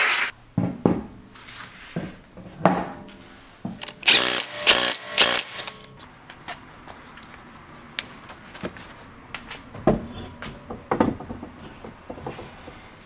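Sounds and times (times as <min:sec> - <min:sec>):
impact wrench bursts: 0:03.8 - 0:05.9.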